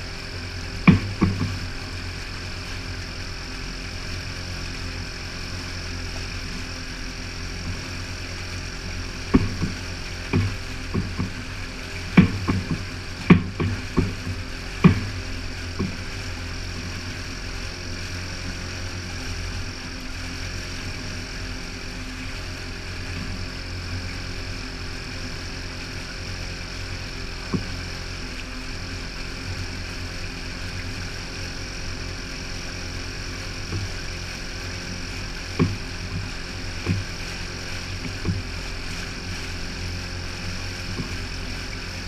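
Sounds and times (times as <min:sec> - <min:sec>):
outboard motor droning: 0:00.0 - 0:42.0
short sharp knocks: 0:00.9 - 0:01.6, 0:09.3 - 0:11.4, 0:12.1 - 0:15.2.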